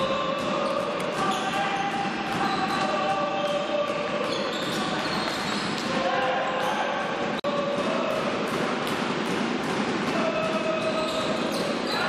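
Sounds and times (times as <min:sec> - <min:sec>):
shoes squeaking: 0:00.0 - 0:07.0, 0:10.3 - 0:12.0.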